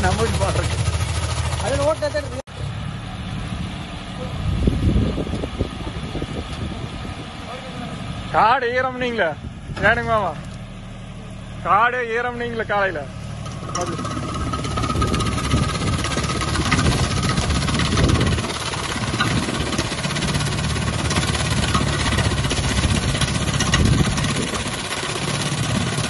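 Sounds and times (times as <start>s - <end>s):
tractor diesel engine running: 0.0s - 26.0s
shredder rattling din: 13.4s - 26.0s.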